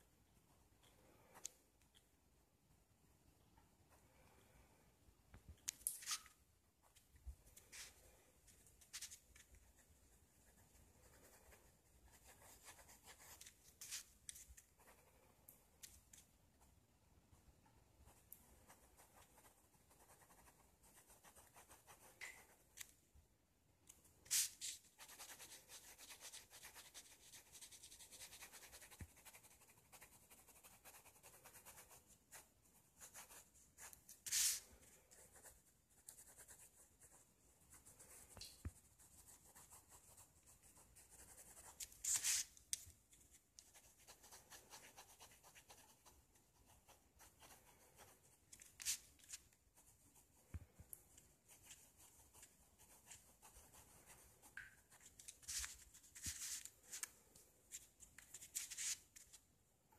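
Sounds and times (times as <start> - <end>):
pen scratching on paper: 8.8 - 15.4, 18.0 - 22.6, 24.2 - 42.5, 43.3 - 50.3.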